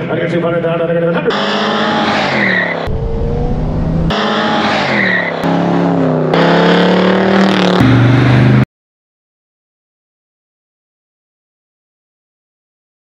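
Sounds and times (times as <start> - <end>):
car engines revving by: 1.2 - 8.7.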